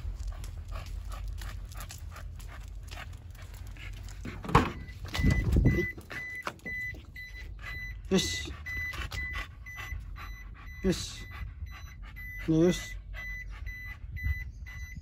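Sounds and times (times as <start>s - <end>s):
footsteps on asphalt: 0.0s - 7.5s
dog panting: 0.0s - 15.0s
truck door unlatching and opening: 4.4s - 6.6s
short electronic warning beeps: 4.8s - 15.0s.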